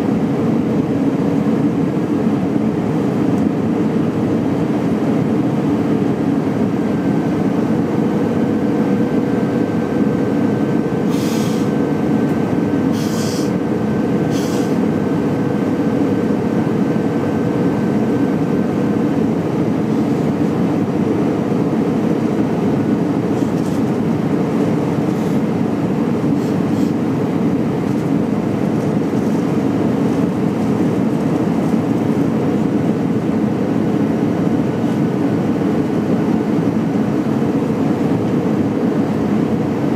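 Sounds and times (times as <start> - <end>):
airplane cabin engine roar: 0.0 - 39.9
faint steady whine: 0.0 - 39.9
short hisses: 11.1 - 11.7, 13.0 - 13.5, 14.3 - 14.8.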